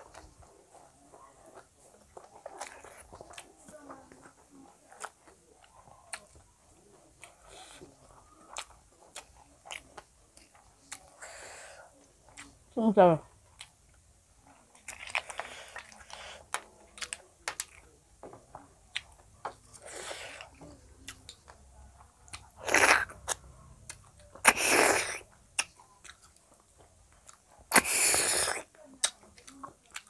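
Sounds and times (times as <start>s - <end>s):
chewing and crunching: 0.0s - 30.0s
wet mouth noises: 22.2s - 26.3s, 27.3s - 30.0s.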